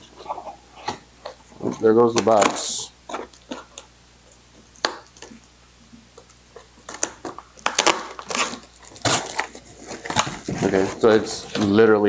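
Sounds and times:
packing paper crumpling: 0:06.9 - 0:11.7.

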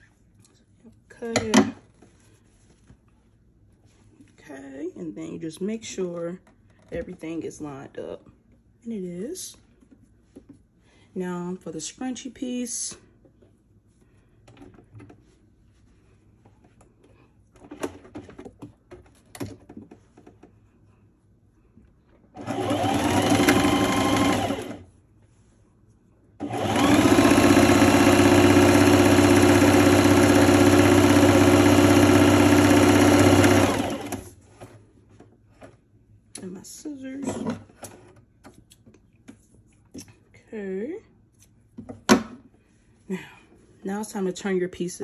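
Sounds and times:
sewing machine stitching: 0:22.4 - 0:24.8, 0:26.4 - 0:34.3.

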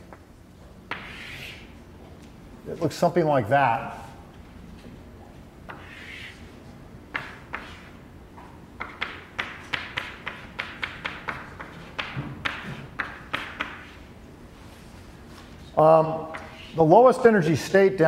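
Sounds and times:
chalk tapping on blackboard: 0:00.9 - 0:01.7, 0:05.7 - 0:06.4, 0:07.1 - 0:07.9, 0:08.8 - 0:14.0.

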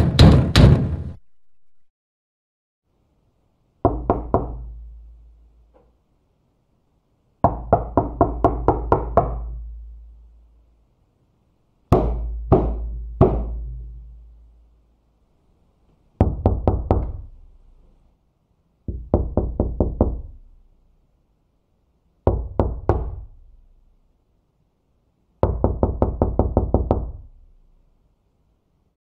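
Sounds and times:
knocking on a door: 0:00.0 - 0:01.2, 0:03.9 - 0:04.7, 0:07.4 - 0:09.6, 0:11.9 - 0:13.8, 0:16.2 - 0:17.3, 0:18.9 - 0:20.4, 0:22.3 - 0:23.3, 0:25.4 - 0:27.3.

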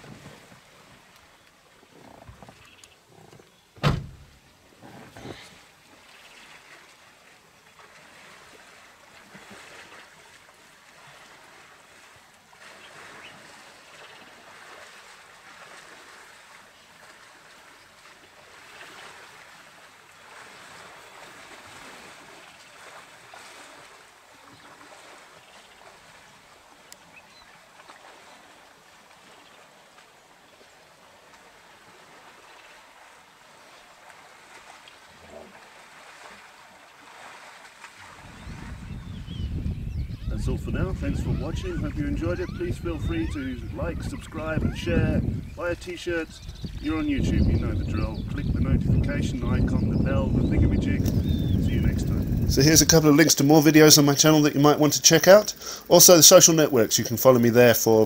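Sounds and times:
river water rushing and splashing: 0:05.4 - 0:39.1, 0:52.5 - 0:58.0.

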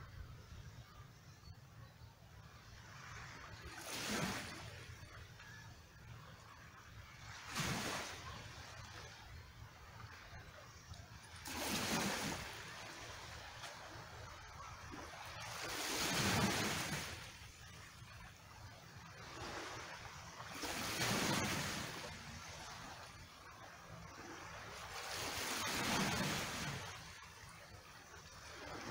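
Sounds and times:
small waves washing over rocky shore: 0:03.0 - 0:05.5, 0:07.2 - 0:09.1, 0:10.4 - 0:18.1, 0:19.0 - 0:28.9.

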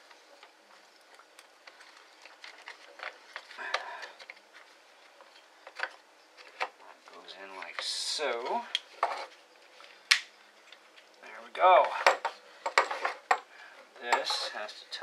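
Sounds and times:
plastic parts clicking and tapping: 0:11.8 - 0:13.5.

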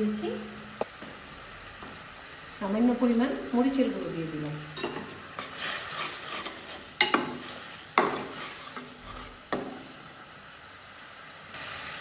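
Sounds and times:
soft sizzle: 0:00.0 - 0:12.0
metal spatula scraping pan: 0:04.8 - 0:09.8.

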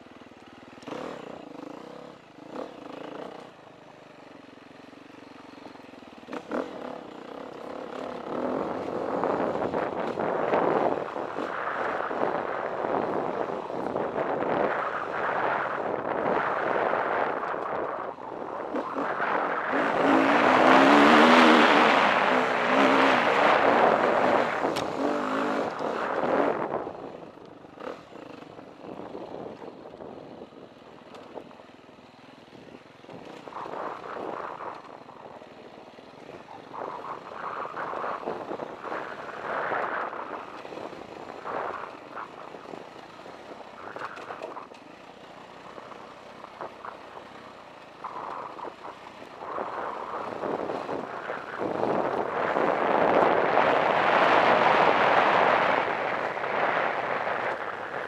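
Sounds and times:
dirt bike engine revving: 0:05.8 - 0:18.0, 0:18.6 - 0:26.9.

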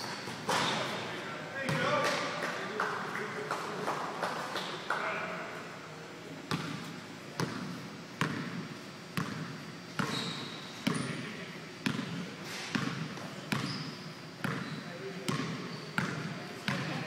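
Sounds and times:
basketball bouncing on wooden floor: 0:07.4 - 0:08.6, 0:11.8 - 0:13.8.

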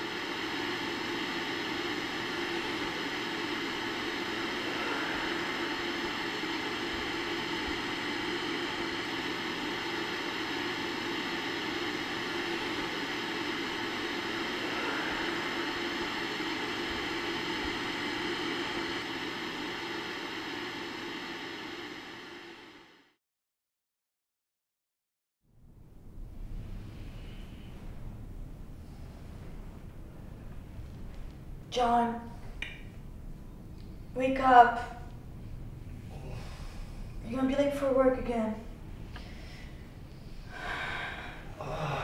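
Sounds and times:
television static hiss: 0:00.0 - 0:22.9.

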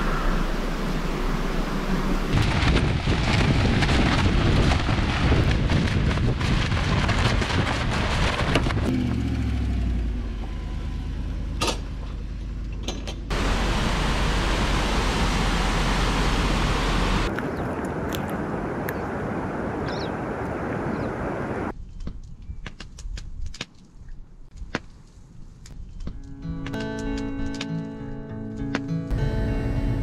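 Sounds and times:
low hum falling in pitch: 0:00.0 - 0:02.4
creek whitewater rushing: 0:13.3 - 0:21.7.

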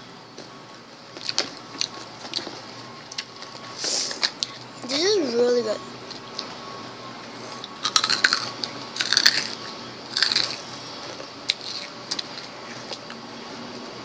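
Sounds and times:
snack packaging crinkling: 0:07.6 - 0:13.2.

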